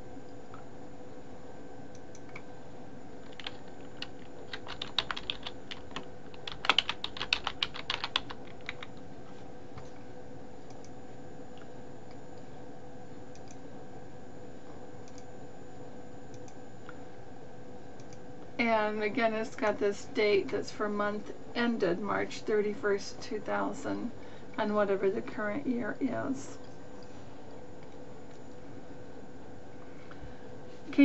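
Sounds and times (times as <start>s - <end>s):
typing on computer keyboard: 3.2s - 9.0s.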